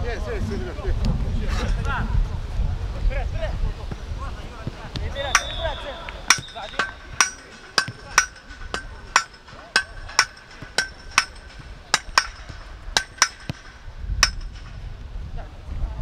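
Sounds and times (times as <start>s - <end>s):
sharp metallic knocks: 5.2s - 14.8s.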